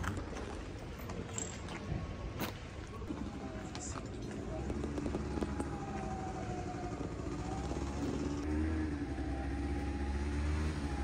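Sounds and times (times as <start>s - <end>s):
vehicle engine humming: 2.9s - 11.0s.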